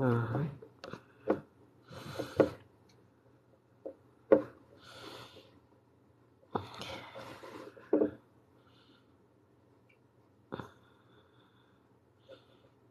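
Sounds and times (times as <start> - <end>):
soft hissing breaths: 1.0 - 2.7, 4.7 - 5.8, 6.4 - 9.5.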